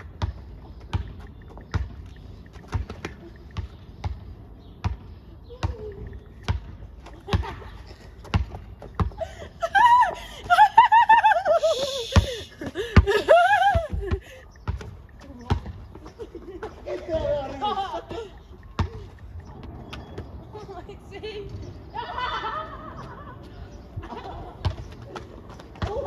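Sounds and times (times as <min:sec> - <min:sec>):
basketball dribbling on hard court: 0:00.0 - 0:02.0.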